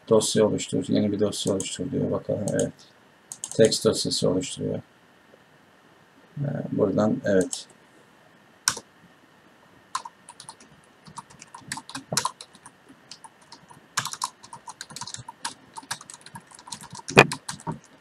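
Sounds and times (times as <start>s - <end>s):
keyboard key clicks: 16.7s - 17.8s.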